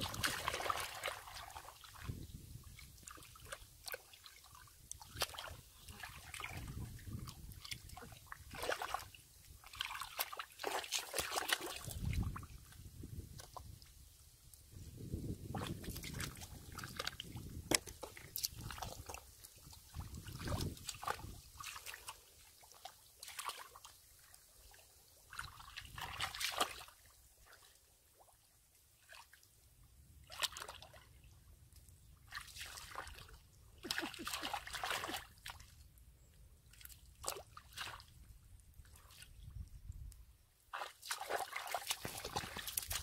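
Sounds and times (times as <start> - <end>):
mud squelching: 0.0 - 13.9, 15.0 - 23.9, 25.3 - 27.6, 30.3 - 31.0, 32.2 - 35.8, 36.7 - 38.2, 40.7 - 43.0
muddy water sloshing: 0.0 - 13.9, 14.9 - 28.4, 30.2 - 39.8, 40.7 - 43.0.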